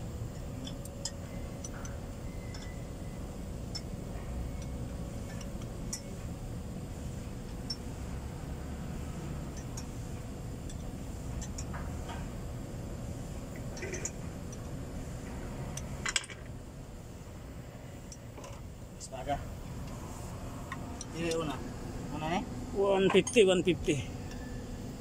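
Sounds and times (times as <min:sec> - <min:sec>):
metallic clicks and clinks: 0:00.3 - 0:02.8.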